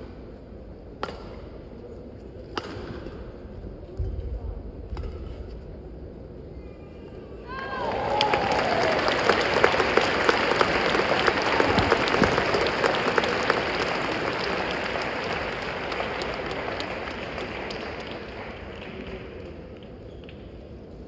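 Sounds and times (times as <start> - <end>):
crowd applauding: 7.5 - 20.0.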